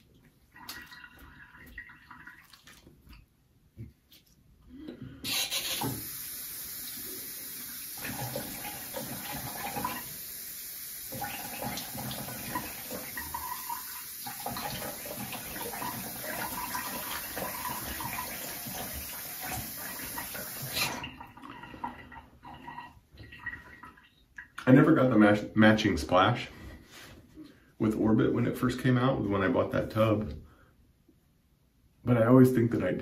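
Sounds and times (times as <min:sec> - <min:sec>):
water splashing: 0:00.5 - 0:03.2
sink tap running: 0:05.3 - 0:21.3.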